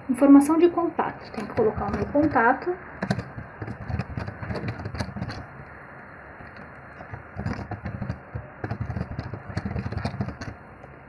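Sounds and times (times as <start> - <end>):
typing on a keyboard: 1.2 - 2.4, 3.0 - 5.5, 6.4 - 10.6.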